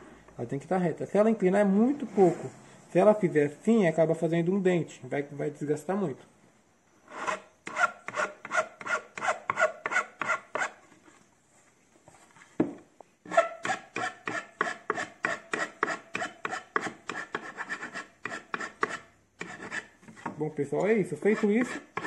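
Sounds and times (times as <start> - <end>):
file rasping on wood: 7.1 - 10.8, 13.3 - 20.3, 21.2 - 22.0.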